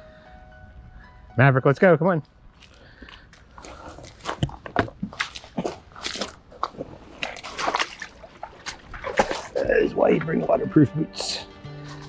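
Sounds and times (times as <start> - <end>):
boots splashing through wet ground: 2.5 - 10.7.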